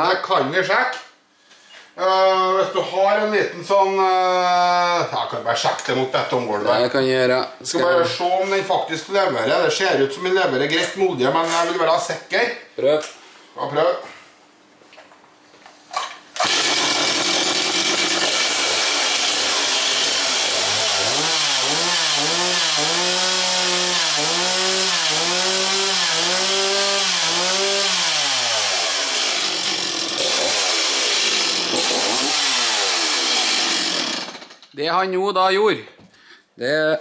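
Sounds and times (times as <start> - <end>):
chainsaw revving: 16.4 - 34.6.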